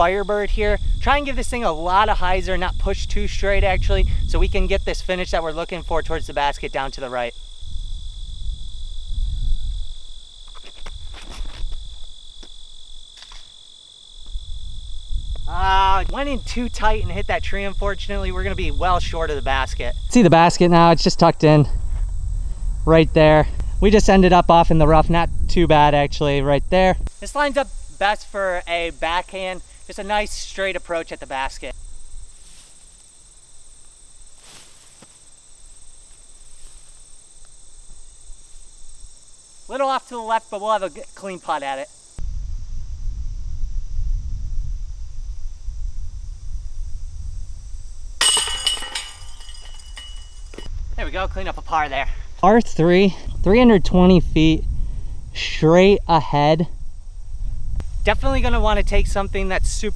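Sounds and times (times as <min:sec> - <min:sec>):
high-pitched insect chorus: 0:00.0 - 0:59.9
short clicks and scuffs: 0:10.5 - 0:12.6, 0:13.2 - 0:13.5.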